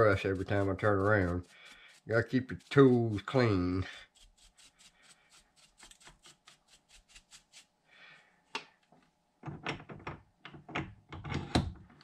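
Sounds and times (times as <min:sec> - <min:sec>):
brush scrubbing metal: 0:00.0 - 0:07.8.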